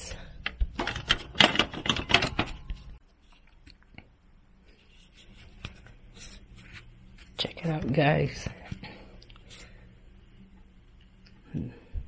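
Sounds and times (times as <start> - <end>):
handling clicks and rattles: 0.8 - 2.8.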